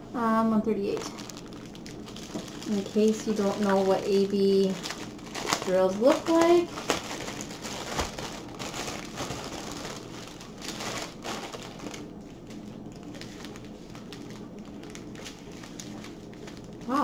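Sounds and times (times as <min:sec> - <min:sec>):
plastic bag crinkling: 0:00.7 - 0:17.0
small packets rustling: 0:00.8 - 0:17.0.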